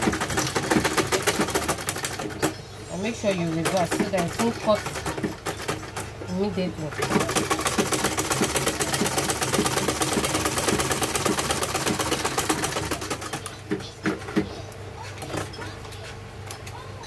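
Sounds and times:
sewing machine stitching: 0:00.0 - 0:02.5, 0:03.2 - 0:06.1, 0:06.7 - 0:14.4.

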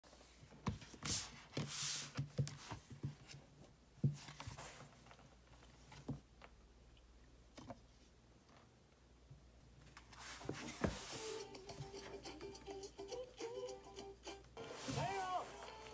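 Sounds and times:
sliding rustles: 0:14.6 - 0:15.9.

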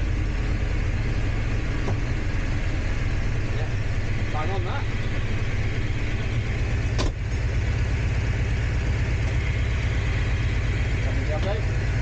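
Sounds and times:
train on the track: 0:00.0 - 0:07.4
diesel locomotive engine rumble: 0:00.0 - 0:12.0.

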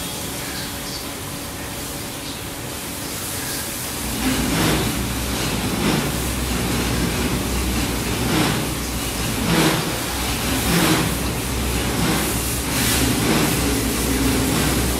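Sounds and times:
car wash rushing noise: 0:00.0 - 0:14.9
low machine hum: 0:00.0 - 0:14.9.

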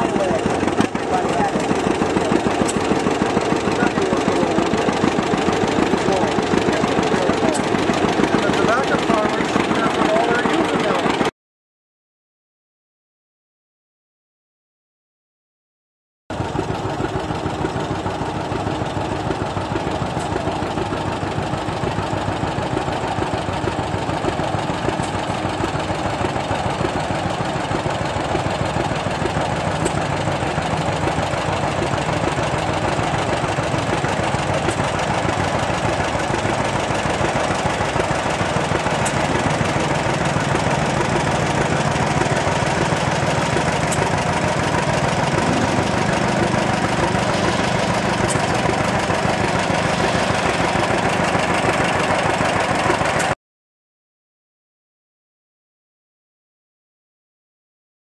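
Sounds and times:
tractor engine idling: 0:00.0 - 0:11.3, 0:16.3 - 0:53.4.

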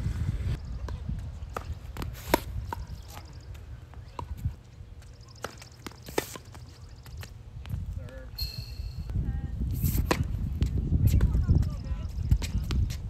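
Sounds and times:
tennis ball bouncing: 0:00.8 - 0:03.4
tennis racket hitting ball: 0:01.5 - 0:03.3.

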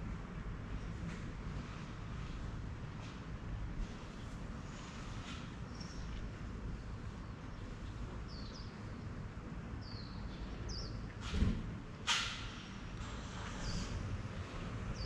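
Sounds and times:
low street hum: 0:00.0 - 0:15.0
birds chirping: 0:05.6 - 0:06.2, 0:06.8 - 0:09.2, 0:09.8 - 0:11.1.

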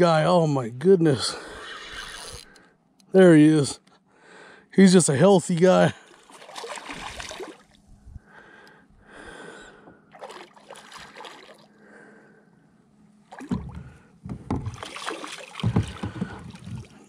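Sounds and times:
person breathing heavily: 0:04.1 - 0:04.7, 0:08.1 - 0:10.1, 0:11.0 - 0:12.7
fish splashing at surface: 0:06.2 - 0:07.8, 0:10.1 - 0:11.7, 0:14.7 - 0:16.9
loud bumps and knocks: 0:13.5 - 0:14.9, 0:15.6 - 0:16.9.

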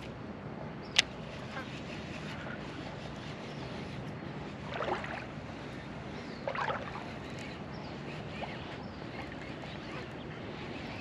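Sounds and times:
river water running and lapping: 0:00.0 - 0:11.0
water splashes: 0:04.6 - 0:05.3, 0:06.4 - 0:07.0.

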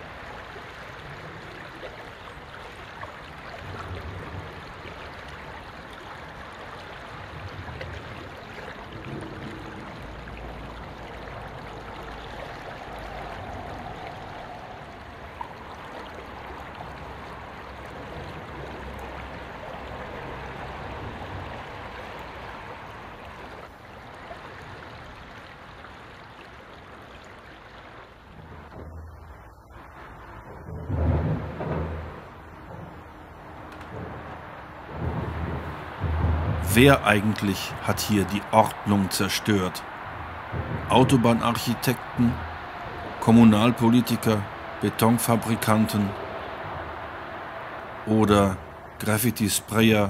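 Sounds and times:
vehicles rumbling overhead: 0:00.0 - 0:23.8, 0:27.9 - 0:50.0
rushing water: 0:00.0 - 0:50.0
traffic noise: 0:00.0 - 0:50.0.

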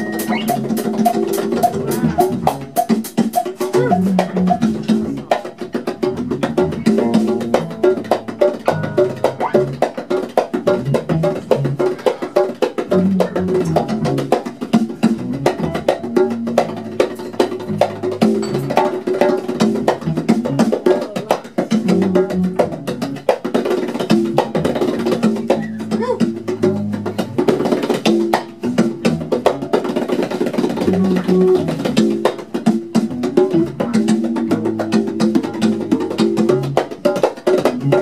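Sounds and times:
busy percussion: 0:00.0 - 0:38.0
funk band playing: 0:00.0 - 0:38.0.

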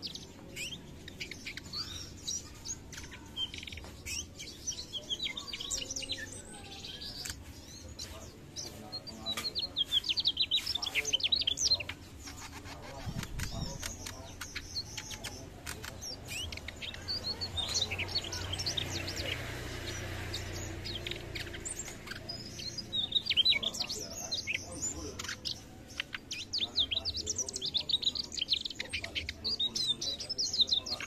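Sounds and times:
bird chirping and trilling: 0:00.0 - 0:31.0.

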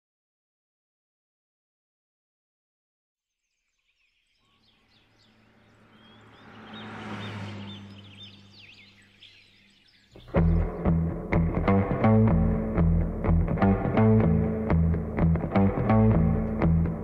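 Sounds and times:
birds chirping: 0:03.3 - 0:17.0
rushing noise: 0:05.3 - 0:08.9
guitar music: 0:10.2 - 0:17.0.

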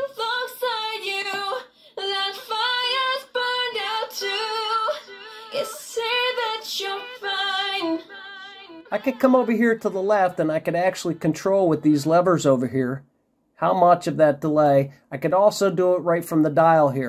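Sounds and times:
woman singing with delay effect: 0:00.0 - 0:11.8.

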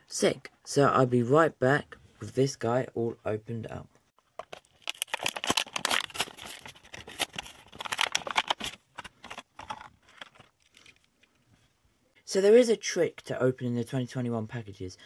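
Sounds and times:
plastic blister crinkling: 0:04.2 - 0:11.3
cardboard tearing: 0:04.8 - 0:10.3.

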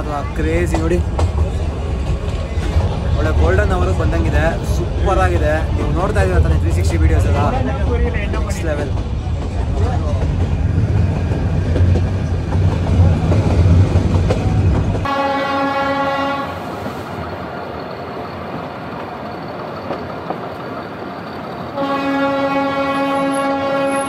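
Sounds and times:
train running rumble: 0:00.0 - 0:24.0
train horn: 0:15.0 - 0:16.7, 0:21.8 - 0:24.0.

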